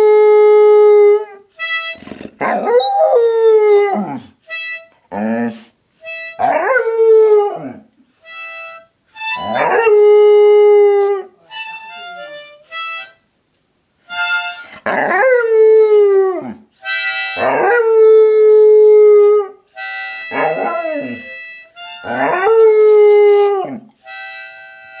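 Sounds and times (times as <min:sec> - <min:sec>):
harmonica notes: 0:01.5 - 0:02.3, 0:04.4 - 0:05.4, 0:06.0 - 0:07.5, 0:08.1 - 0:10.8, 0:11.4 - 0:13.3, 0:14.0 - 0:14.8, 0:16.7 - 0:18.4, 0:19.7 - 0:25.0
dog howling: 0:02.4 - 0:04.3, 0:06.4 - 0:07.8, 0:09.4 - 0:11.3, 0:14.8 - 0:16.6, 0:17.4 - 0:19.6, 0:20.3 - 0:21.4, 0:22.0 - 0:23.9.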